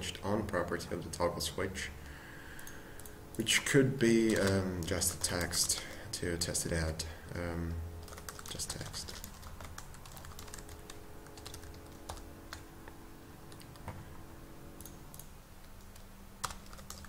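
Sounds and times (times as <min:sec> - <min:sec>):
computer keyboard typing: 0:02.6 - 0:06.1, 0:08.0 - 0:12.7, 0:14.8 - 0:17.0.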